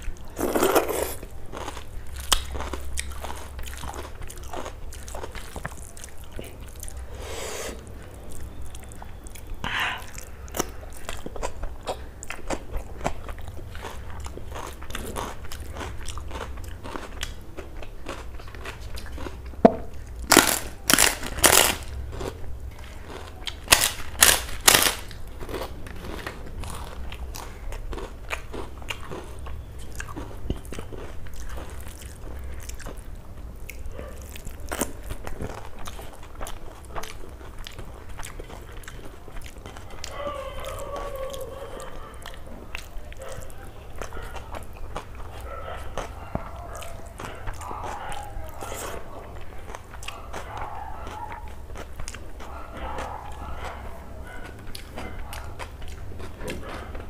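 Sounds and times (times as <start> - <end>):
chewing and wet mouth sounds: 0.0 - 57.0
loud crunching bites: 20.2 - 22.4, 23.0 - 27.0.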